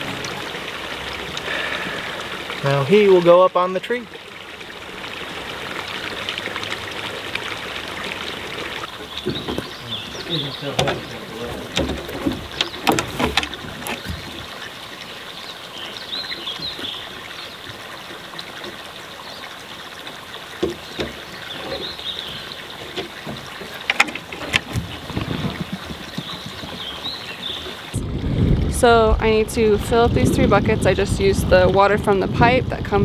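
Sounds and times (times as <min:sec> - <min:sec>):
running water rush: 0:00.0 - 0:33.0
birds chirping: 0:06.9 - 0:28.0.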